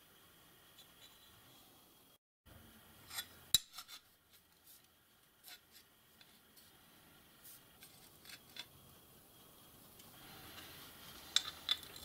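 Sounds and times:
faint clicks and rubs of metal parts: 3.1s - 6.8s, 7.4s - 8.8s.

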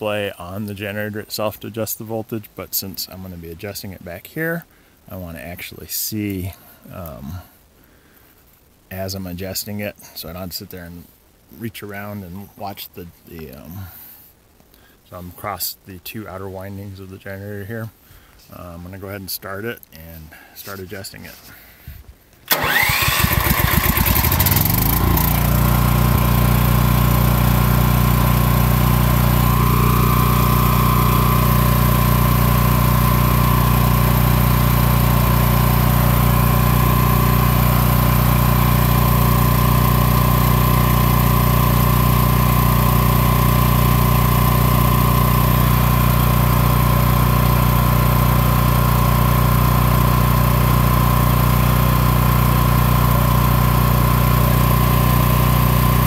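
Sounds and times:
portable generator engine running: 22.5s - 56.0s.

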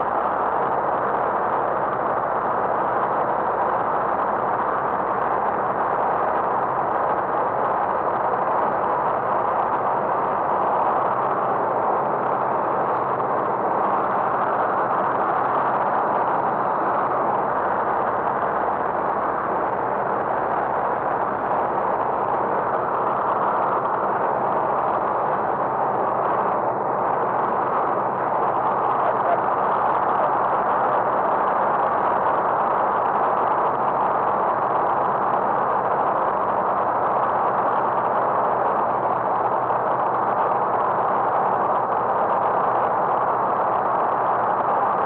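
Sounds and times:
light aircraft engine drone: 0.0s - 45.0s.

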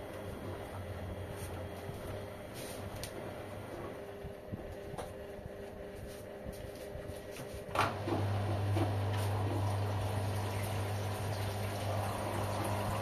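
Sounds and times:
washing machines running: 0.0s - 13.0s
rushing water in washing machine: 7.7s - 13.0s.

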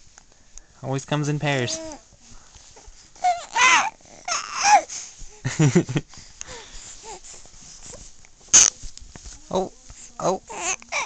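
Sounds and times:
infant cooing squeals: 3.2s - 4.9s, 10.5s - 11.0s
sharp breathy burst: 6.1s - 7.4s.

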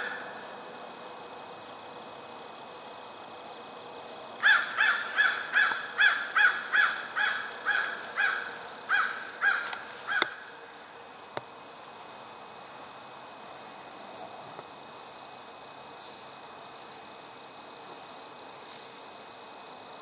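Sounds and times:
bird crow-like calls: 0.0s - 0.5s, 4.4s - 10.7s.

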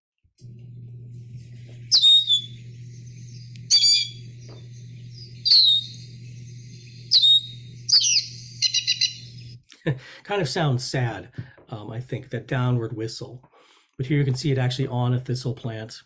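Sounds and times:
steady low hum: 0.4s - 12.9s
bird whistled calls: 1.9s - 9.5s.

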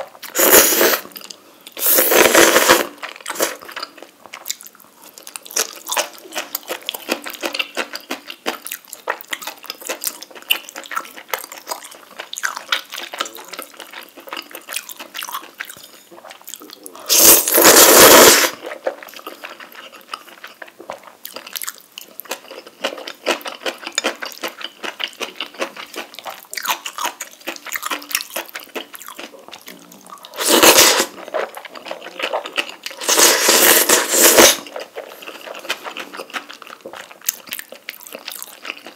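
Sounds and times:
loud slurps: 0.3s - 1.1s, 1.8s - 3.6s, 17.1s - 18.6s, 30.3s - 31.2s, 33.0s - 34.7s
wet chewing: 1.0s - 17.3s, 18.3s - 38.9s.

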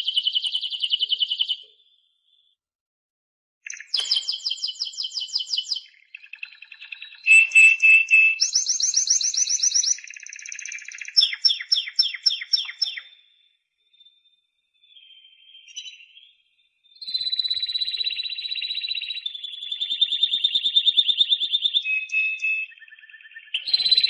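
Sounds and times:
canary singing trills: 3.7s - 13.3s, 14.8s - 24.0s.

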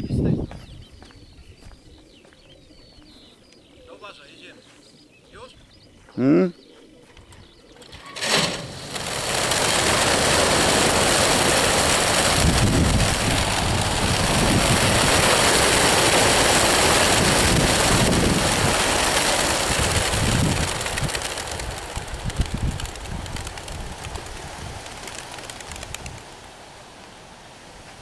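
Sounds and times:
pigeon wingbeats rushing: 7.3s - 26.6s.

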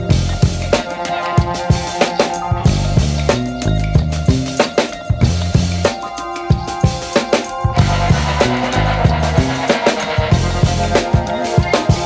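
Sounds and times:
music with drum beat and bass: 0.0s - 12.0s.

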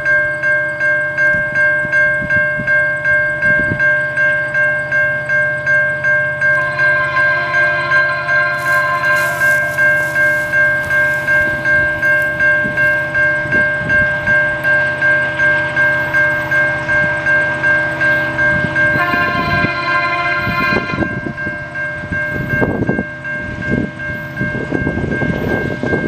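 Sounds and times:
railway crossing bell ringing: 0.0s - 26.0s
train horn: 6.5s - 12.8s, 14.2s - 21.8s.

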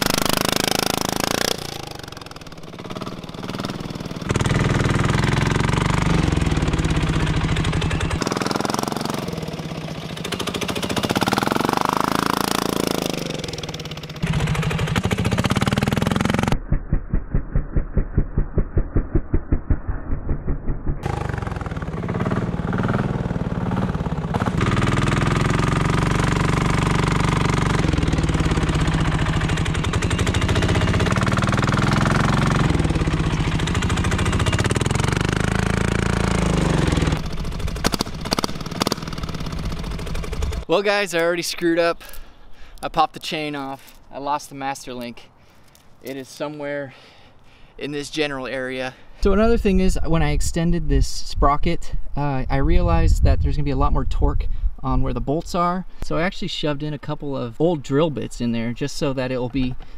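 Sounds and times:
quad diesel engine running: 0.0s - 16.6s, 19.2s - 40.7s.

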